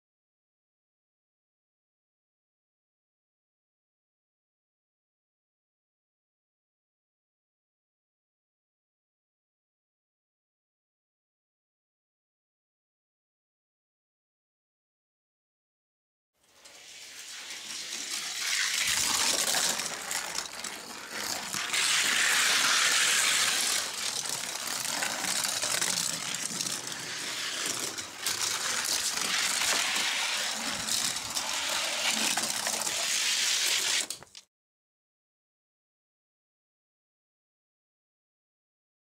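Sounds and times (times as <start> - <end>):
toy cars rolling down a track: 16.4 - 34.5.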